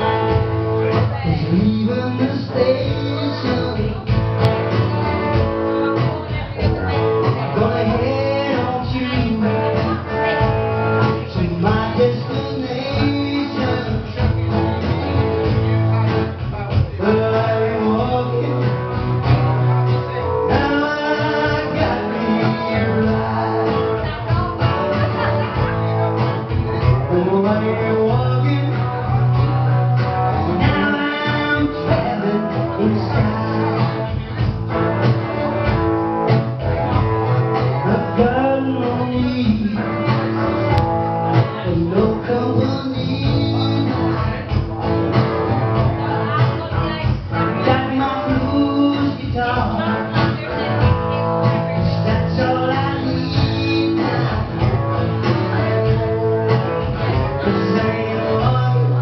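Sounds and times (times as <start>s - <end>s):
man singing into a microphone: 0.0s - 35.7s, 36.6s - 44.8s, 45.4s - 59.0s
acoustic guitar: 0.0s - 59.0s.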